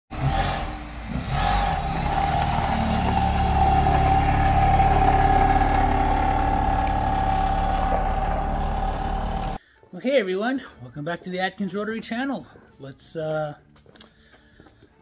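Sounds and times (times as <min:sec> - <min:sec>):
car engine driving off: 0:00.1 - 0:09.6.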